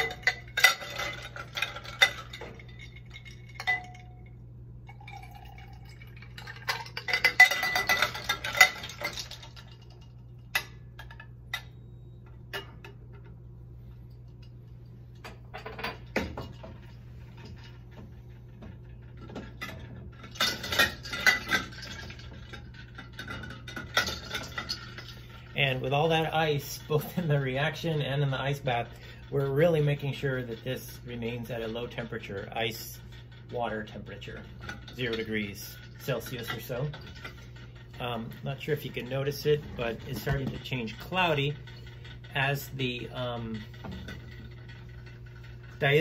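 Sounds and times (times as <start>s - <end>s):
glass and ice clinking: 0.0s - 11.9s, 18.8s - 25.3s
low steady hum: 0.0s - 46.0s.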